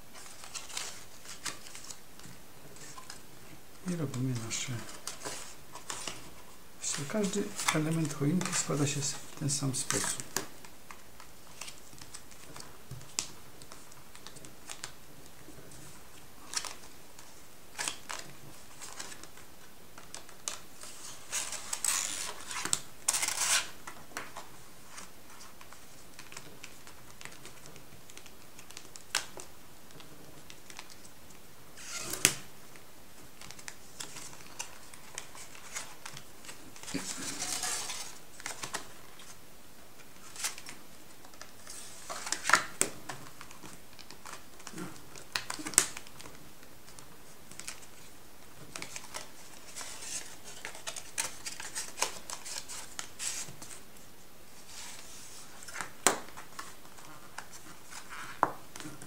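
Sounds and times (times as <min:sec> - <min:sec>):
foil paper crinkling: 0:33.4 - 0:39.4, 0:48.7 - 0:53.8.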